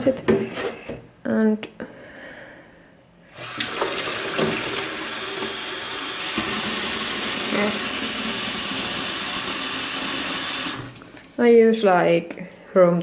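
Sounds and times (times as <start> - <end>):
water running into plastic can: 3.3 - 11.3
kitchen tap turned on: 3.4 - 11.1.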